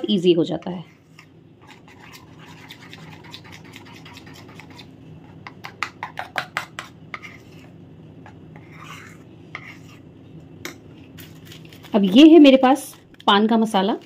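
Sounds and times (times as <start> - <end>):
spoon scraping plastic bowl: 0.9 - 5.4, 8.6 - 10.0.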